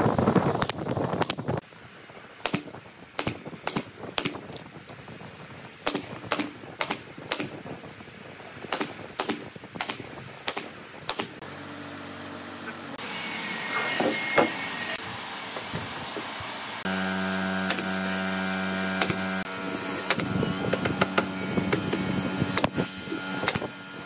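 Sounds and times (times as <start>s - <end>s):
nail gun firing: 0.6s - 1.4s, 2.4s - 4.4s, 5.8s - 7.6s, 8.7s - 11.4s, 17.6s - 17.9s, 19.0s - 19.3s, 20.0s - 23.7s.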